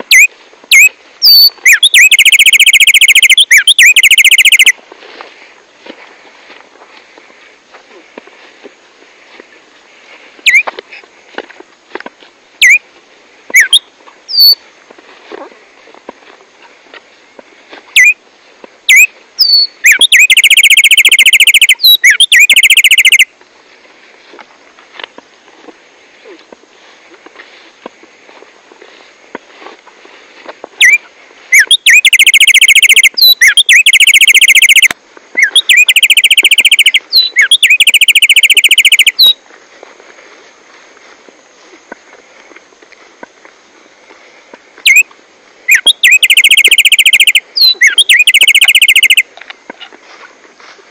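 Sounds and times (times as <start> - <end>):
sparrow whistled calls: 0.0 - 4.7, 13.6 - 14.6, 18.9 - 23.2, 30.8 - 39.4, 44.8 - 45.0, 45.7 - 49.2.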